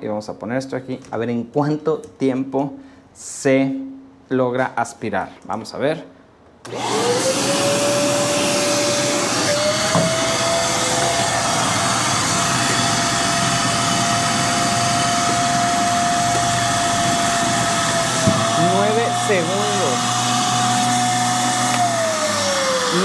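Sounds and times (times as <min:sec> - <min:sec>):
vacuum motor whine: 0:06.6 - 0:23.0
hose sucking water: 0:07.8 - 0:23.0.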